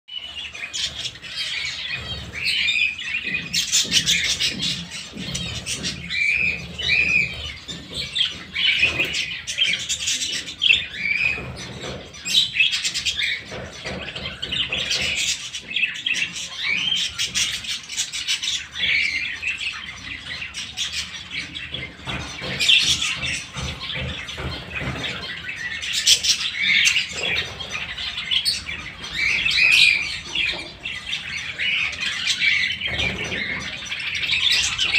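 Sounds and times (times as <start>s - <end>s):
budgerigars chattering: 0.1s - 34.9s.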